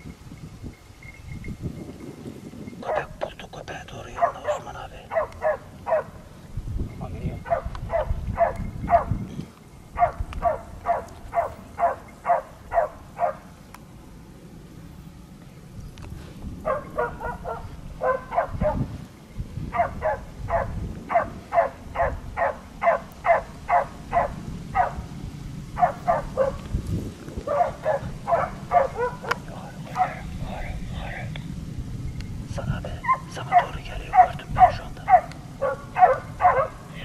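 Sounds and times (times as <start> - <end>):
steady low rumble: 1.4 - 37.0
dog barking: 2.8 - 3.2, 4.0 - 6.2, 7.4 - 9.1, 10.0 - 13.5, 16.6 - 18.9, 19.7 - 25.0, 25.8 - 26.6, 27.4 - 30.3, 33.0 - 36.9.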